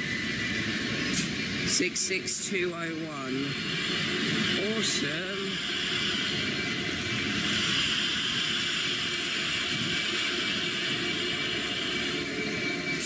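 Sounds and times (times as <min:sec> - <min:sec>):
train rumble: 0:00.0 - 0:13.0
hiss: 0:03.7 - 0:13.0.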